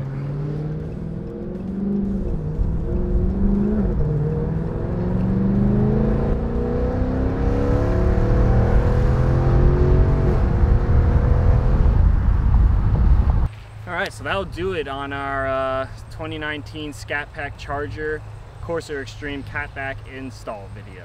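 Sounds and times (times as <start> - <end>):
car engine accelerating: 0.0 - 13.5.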